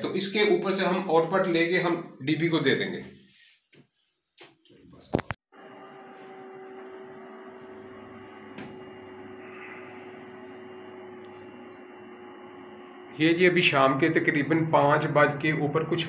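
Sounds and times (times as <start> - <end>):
electrical hum with held tones: 5.6 - 16.0.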